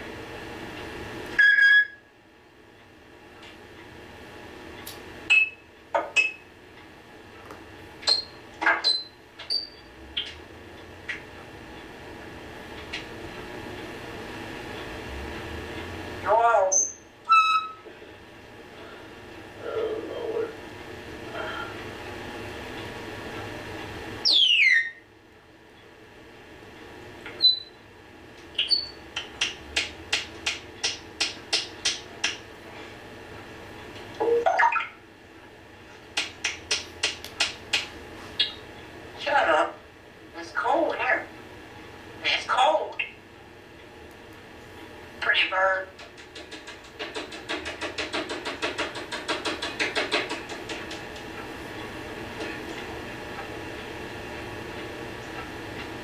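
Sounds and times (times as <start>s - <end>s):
bird chirping: 24.2s - 25.0s, 27.4s - 27.7s, 28.6s - 29.0s, 38.4s - 38.6s
bird clicking: 46.0s - 51.0s.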